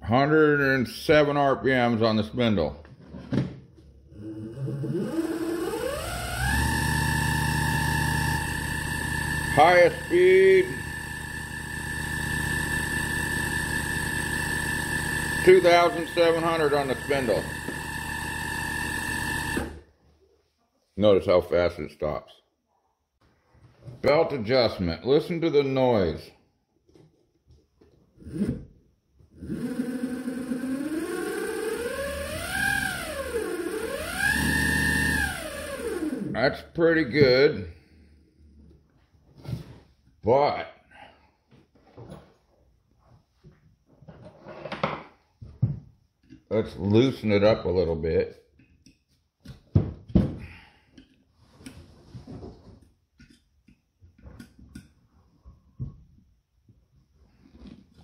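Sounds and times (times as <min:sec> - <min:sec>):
motor driven spindle whining: 0:04.6 - 0:19.8, 0:29.5 - 0:36.3.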